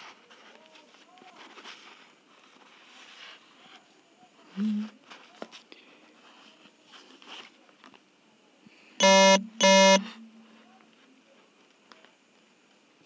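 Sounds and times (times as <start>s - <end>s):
short buzzing beeps: 9.0s - 10.4s.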